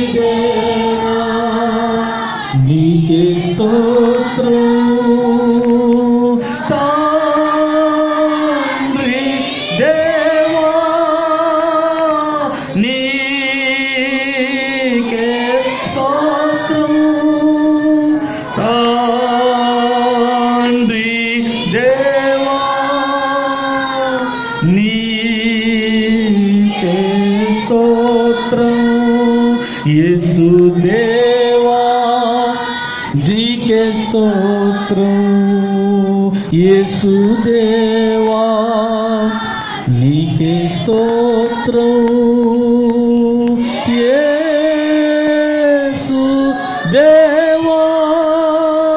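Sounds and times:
man singing into a microphone: 0.0s - 48.9s.

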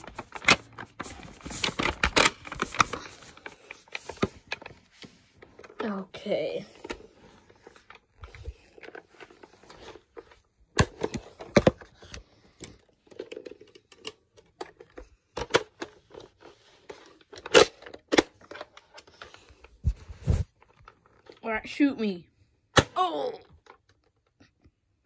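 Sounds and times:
toy blaster handling rustle: 0.0s - 6.0s.

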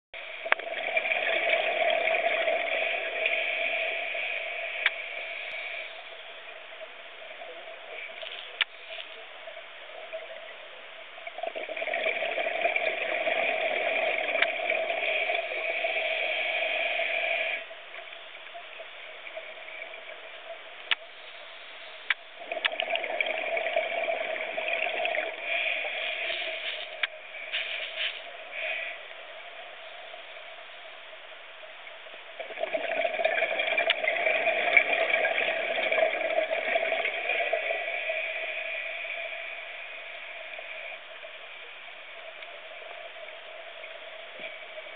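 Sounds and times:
faint underwater background: 0.2s - 44.9s
steady hum: 0.2s - 44.9s
bubbles gurgling underwater: 0.4s - 3.4s, 11.3s - 15.8s, 22.4s - 25.5s, 32.4s - 37.9s.

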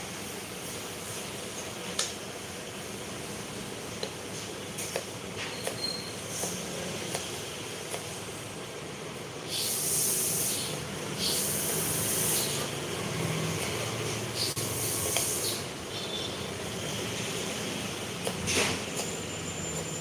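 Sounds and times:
hisses: 9.4s - 12.8s, 14.1s - 15.7s.

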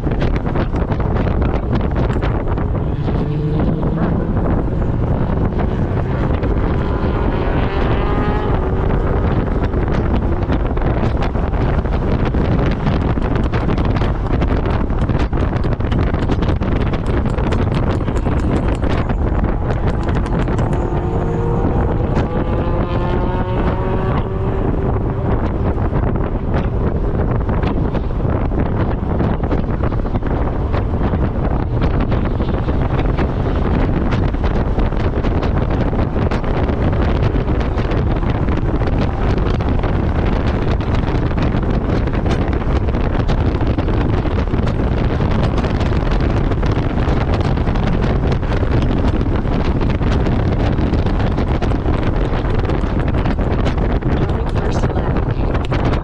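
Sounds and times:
car running noise: 0.0s - 56.0s
wind buffeting the microphone: 0.0s - 56.0s.

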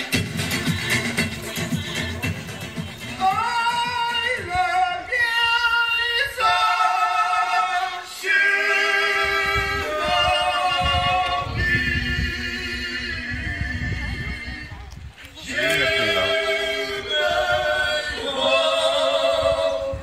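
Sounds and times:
dance music over loudspeaker: 0.0s - 4.5s
women singing with vibrato: 15.4s - 20.0s.

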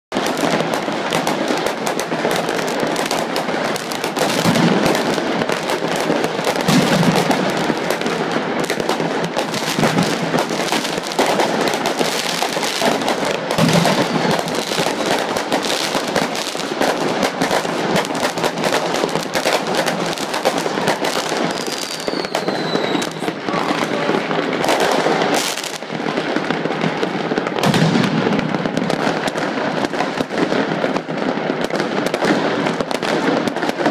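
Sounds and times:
firecrackers crackling and banging: 0.1s - 33.9s
firework falling whistle: 20.5s - 25.6s.

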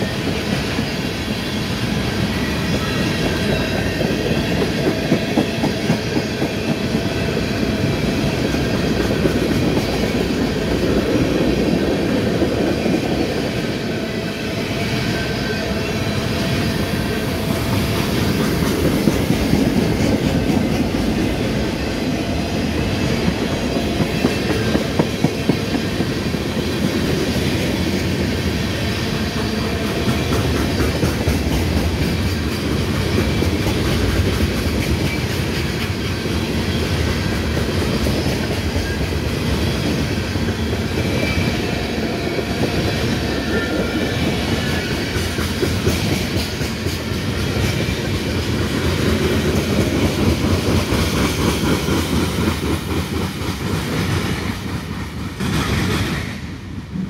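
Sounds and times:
clickety-clack over rail joints: 0.0s - 14.0s, 14.7s - 57.0s
steel wheels rumbling on rail: 0.0s - 57.0s.

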